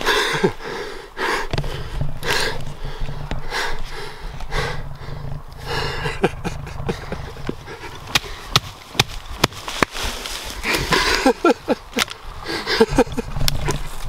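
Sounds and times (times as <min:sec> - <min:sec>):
heavy excited breathing: 0:00.0 - 0:08.6, 0:10.5 - 0:13.3
low steady rumble: 0:00.0 - 0:09.6.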